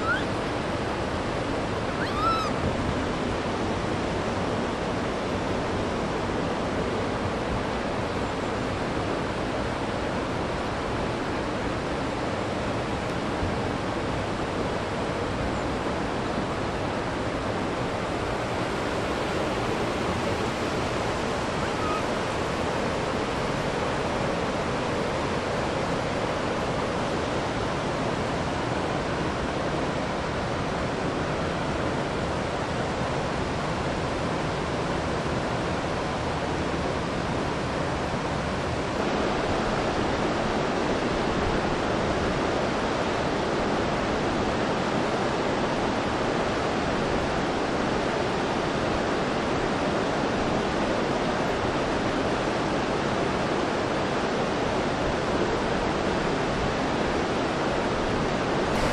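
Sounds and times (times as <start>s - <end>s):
flowing water of a stream: 0.0s - 58.9s.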